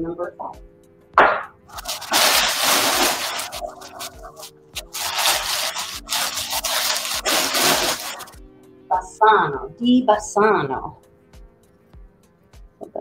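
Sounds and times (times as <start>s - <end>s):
packing paper rustling and crinkling: 1.7s - 8.4s.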